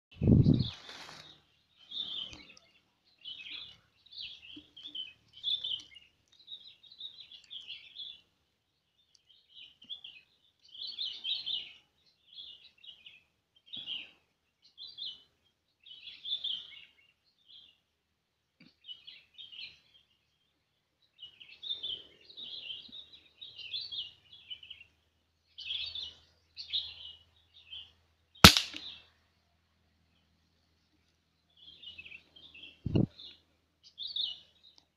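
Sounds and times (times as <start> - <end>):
small birds chirping: 0.2 - 34.9
rifle shot: 28.4 - 28.9.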